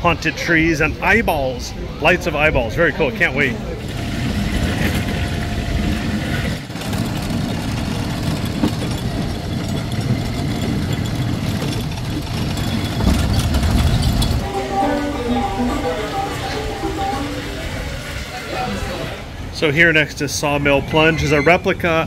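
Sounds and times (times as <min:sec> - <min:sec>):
car engine rumbling: 0:03.6 - 0:19.6.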